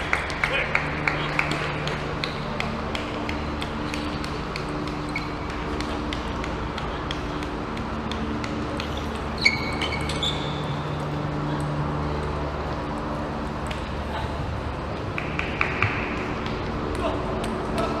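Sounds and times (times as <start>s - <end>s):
low hum: 0.0s - 18.0s
high squeak: 9.4s - 10.7s.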